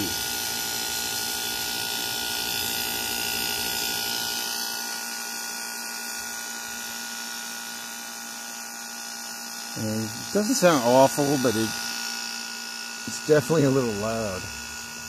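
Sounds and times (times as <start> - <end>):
air conditioner humming: 0.0 - 5.2, 9.0 - 12.2, 13.0 - 15.0.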